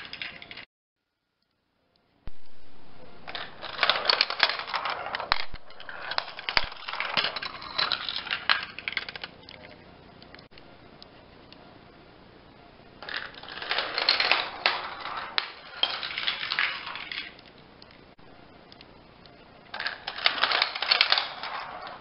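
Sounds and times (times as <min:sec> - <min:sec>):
marbles rattling through plastic run: 0:03.3 - 0:09.8, 0:13.0 - 0:17.5, 0:19.7 - 0:22.0.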